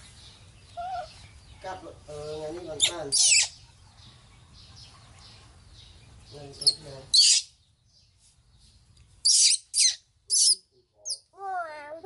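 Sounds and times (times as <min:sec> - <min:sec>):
baby monkey squealing: 0:02.8 - 0:03.6, 0:07.1 - 0:07.5, 0:09.2 - 0:11.2.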